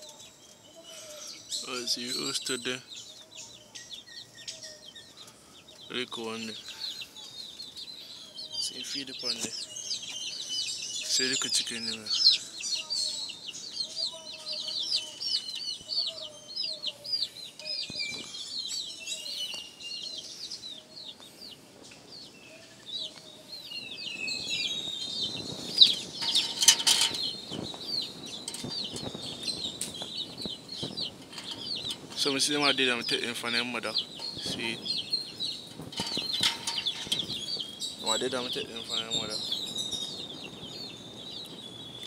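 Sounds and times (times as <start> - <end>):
chicks peeping: 0.0 - 42.0
loud rustling: 25.3 - 38.7.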